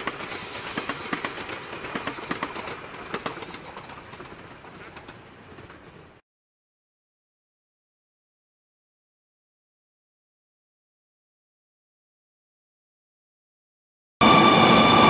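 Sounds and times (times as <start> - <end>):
train wheels rumbling on rails: 0.0 - 6.2
wheels clicking over rail joints: 0.0 - 6.2.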